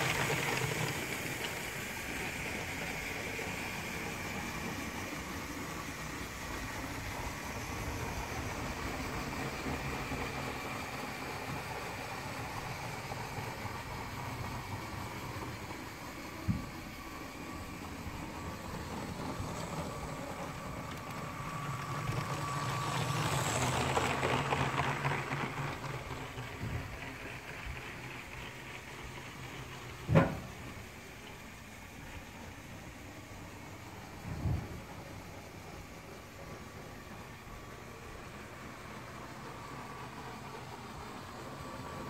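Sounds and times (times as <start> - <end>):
toy train motor whirring: 0.0 - 30.0
wheels rattling on track: 0.0 - 42.0.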